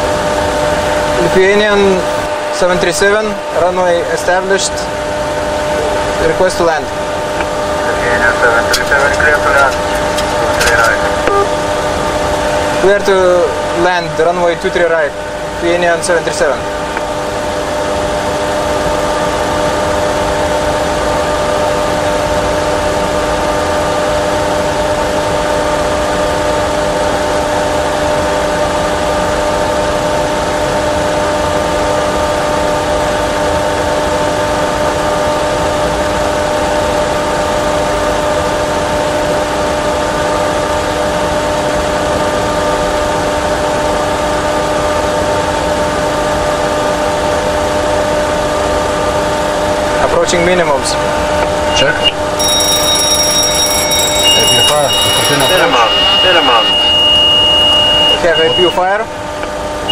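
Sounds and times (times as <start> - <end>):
steady hum tones: 0.0 - 30.2, 43.1 - 59.9
jet engine and airflow noise: 0.0 - 37.0.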